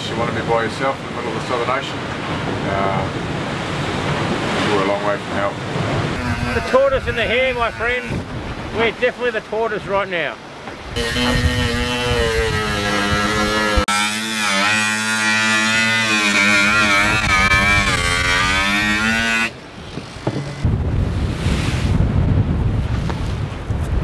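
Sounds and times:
waves: 0.0s - 13.8s, 19.5s - 24.0s
wind: 0.0s - 24.0s.

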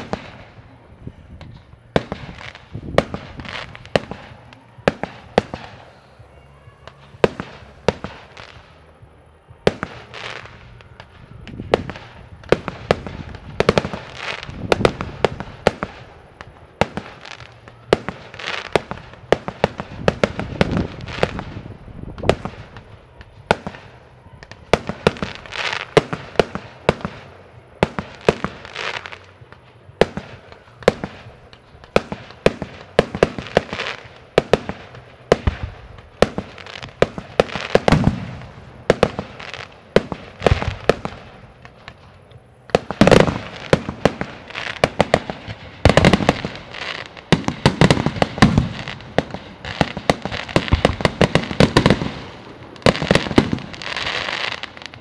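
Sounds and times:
fireworks bangs and crackles: 0.0s - 55.0s.

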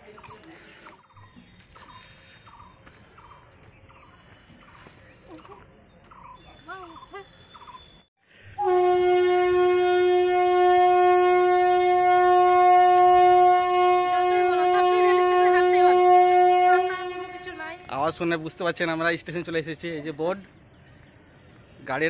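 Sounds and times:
train horn long note: 8.5s - 17.9s.

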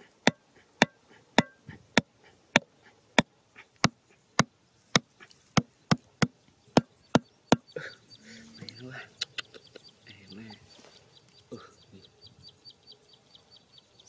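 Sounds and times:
hatchet striking bamboo stake: 0.3s - 1.6s, 3.8s - 7.6s.

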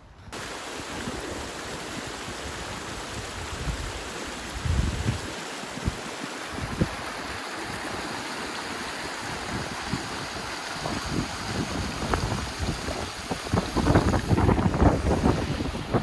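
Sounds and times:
stream splashing over stones: 0.3s - 16.0s
wind rumble on microphone: 1.9s - 7.1s, 9.3s - 16.0s.

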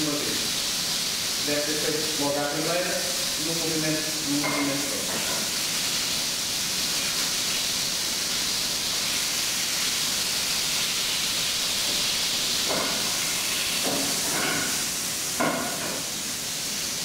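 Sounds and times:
chicken sizzling in frying pan: 0.0s - 17.0s
utensil knocking in pan: 4.4s - 5.5s, 11.8s - 16.1s.

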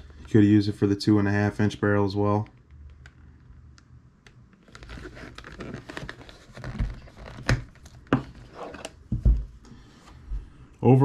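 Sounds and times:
leather holster creaking: 4.5s - 8.9s.

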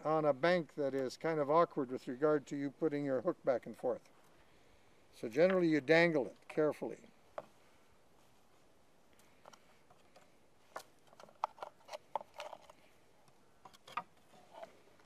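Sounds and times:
fishing tackle clicks and rustles: 9.2s - 13.0s.

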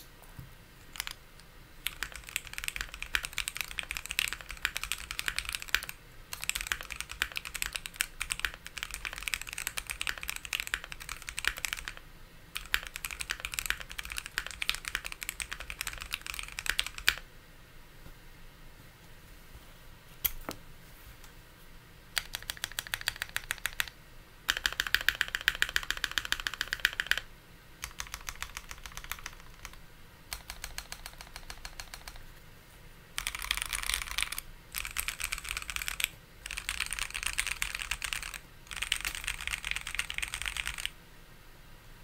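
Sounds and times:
mechanical keyboard typing: 0.9s - 1.2s, 1.8s - 12.0s, 12.6s - 17.2s, 22.2s - 32.3s, 33.2s - 41.0s.

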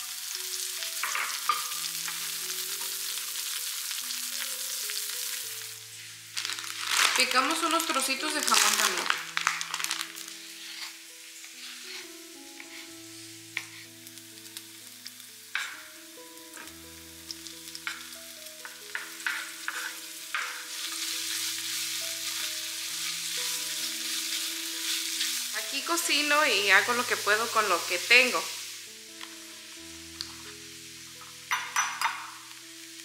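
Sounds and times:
ham sizzling in frying pan: 0.0s - 33.0s
soft background music: 0.0s - 33.0s
wooden spoon stirring: 18.9s - 22.5s.

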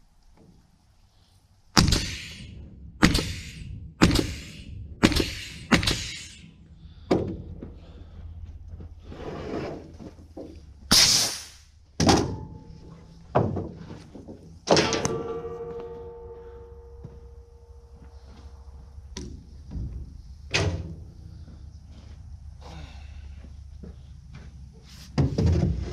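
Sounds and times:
steel parts clanking: 14.6s - 18.0s
steel ringing: 14.8s - 18.8s.

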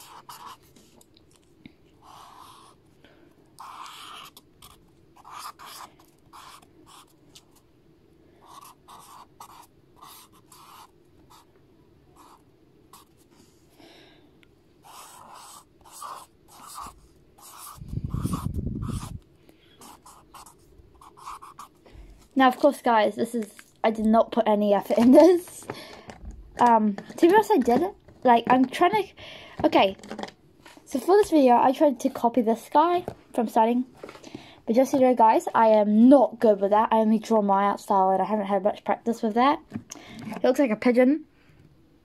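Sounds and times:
marker squeaking on paper: 0.0s - 0.6s, 3.6s - 7.1s, 8.4s - 11.4s, 14.8s - 19.2s, 19.8s - 21.7s.

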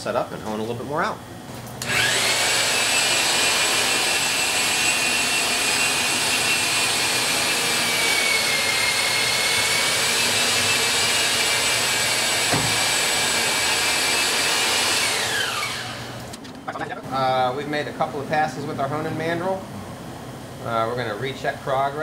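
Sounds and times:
honing machine high whine: 1.8s - 17.9s.

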